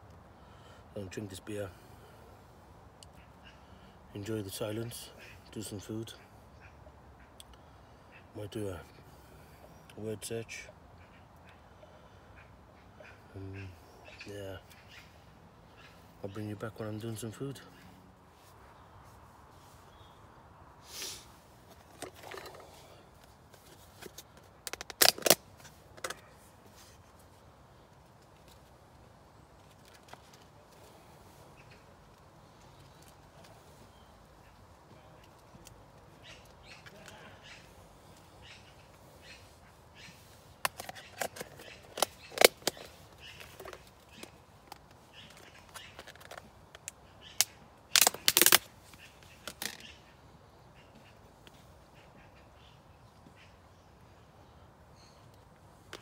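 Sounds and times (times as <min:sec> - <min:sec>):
plastic tubs rustling: 0:21.2 - 0:26.1
plastic tubs clicking and knocking: 0:21.7 - 0:22.6
plastic lid clicks and cracks: 0:24.0 - 0:25.4, 0:40.6 - 0:42.9, 0:44.7 - 0:48.7.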